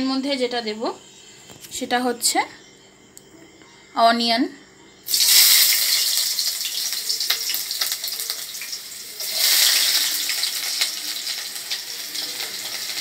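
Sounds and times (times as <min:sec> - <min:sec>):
onion sizzling in hot oil: 0:05.1 - 0:13.0.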